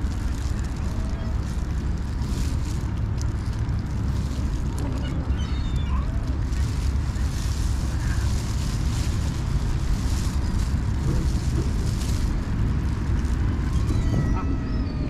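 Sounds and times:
wind buffeting microphone: 0:00.0 - 0:15.0
cat meowing faintly: 0:13.5 - 0:15.0.

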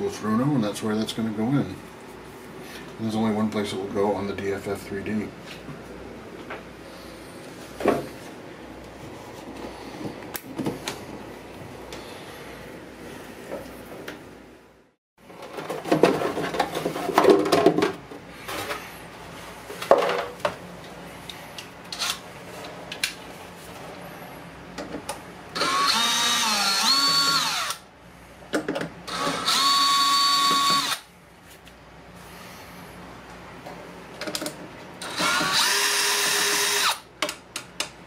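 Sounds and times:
cordless drill whining: 0:25.6 - 0:27.8, 0:29.1 - 0:31.1, 0:35.0 - 0:37.0.

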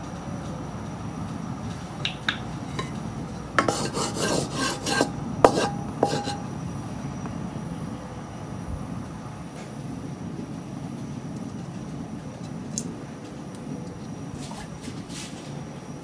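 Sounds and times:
light taps on wok: 0:02.0 - 0:03.9, 0:05.4 - 0:06.4
wooden spatula scraping metal wok: 0:02.6 - 0:03.0, 0:03.6 - 0:06.5.

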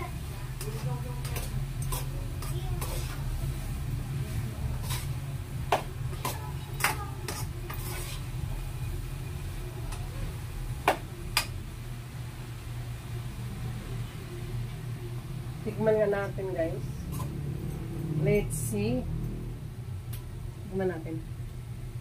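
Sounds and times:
spoon stirring in frying pan: 0:00.0 - 0:10.1
steady low hum: 0:00.0 - 0:22.0.

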